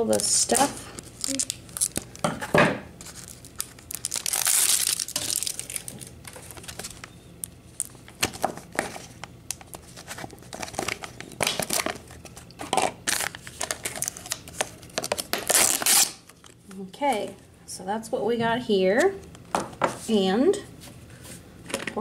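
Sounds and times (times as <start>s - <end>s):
plastic wrapping crinkling and tearing: 0.0s - 2.3s, 3.0s - 16.6s.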